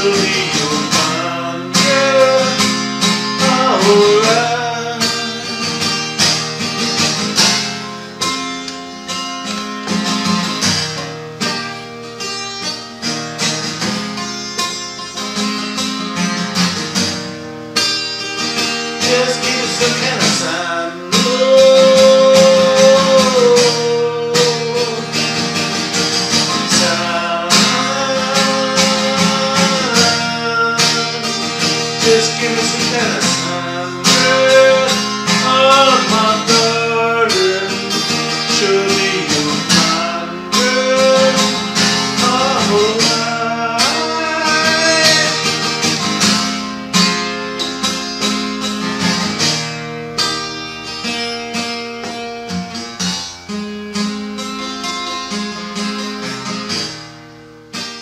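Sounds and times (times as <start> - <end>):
man singing: 0.0 - 6.4, 19.0 - 25.6, 26.3 - 45.9
acoustic guitar strumming: 0.0 - 58.0.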